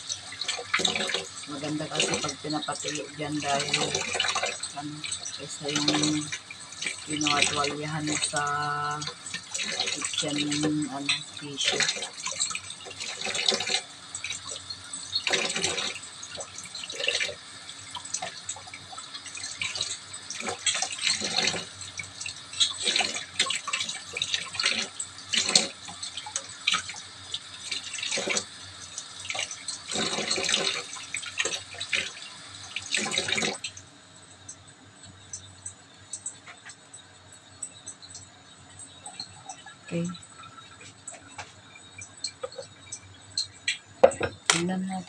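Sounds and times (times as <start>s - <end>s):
tap running into sink: 43.7s - 44.7s.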